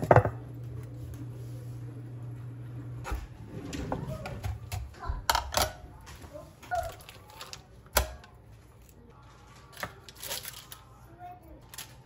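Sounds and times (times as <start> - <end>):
foil unwrapping: 9.2 - 12.0.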